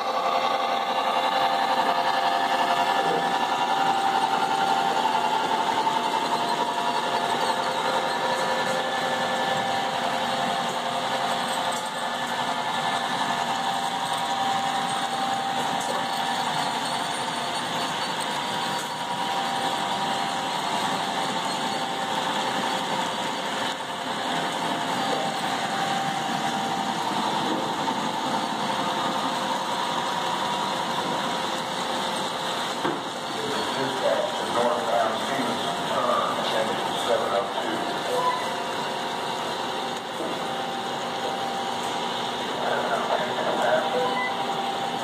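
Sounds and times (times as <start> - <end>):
model train wheels whirring: 0.0 - 45.0.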